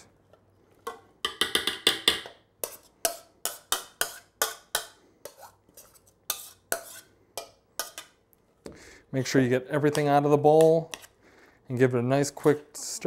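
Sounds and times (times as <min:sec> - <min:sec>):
spoon scraping and tapping bowl: 0:00.9 - 0:08.2, 0:09.8 - 0:11.1.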